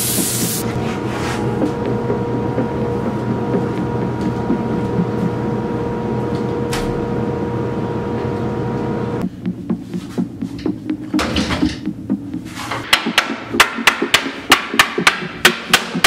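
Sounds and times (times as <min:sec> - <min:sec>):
mechanical drone with whine: 0:00.0 - 0:09.4.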